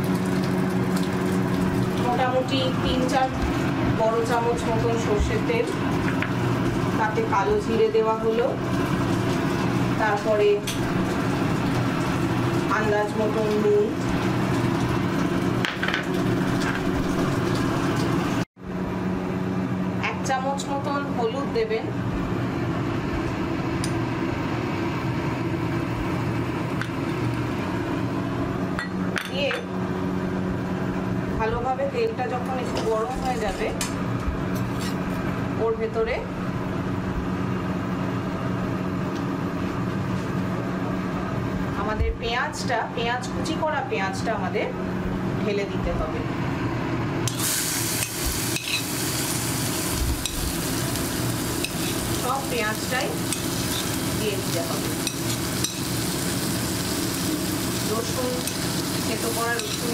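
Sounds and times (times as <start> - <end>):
onion sizzling in hot oil: 0.0 - 18.5, 47.2 - 59.9
low mechanical hum: 0.0 - 59.9.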